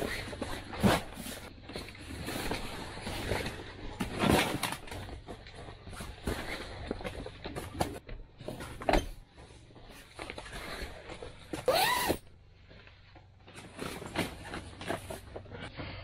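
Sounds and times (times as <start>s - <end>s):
short squeak: 11.7s - 12.2s.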